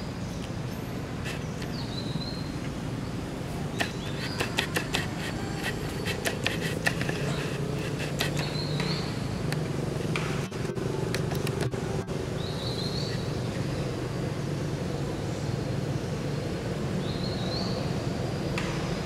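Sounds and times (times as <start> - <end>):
bird chirping: 0.0 - 9.4, 12.4 - 13.9
steady low hum: 0.0 - 19.0.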